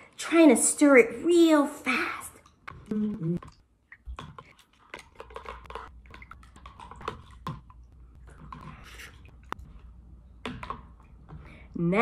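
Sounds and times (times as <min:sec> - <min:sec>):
spoon stirring slime in bowl: 0:02.4 - 0:11.6.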